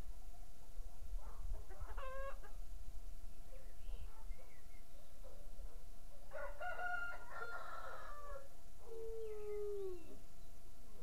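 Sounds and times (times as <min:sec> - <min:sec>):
rooster crowing: 0:06.3 - 0:08.5.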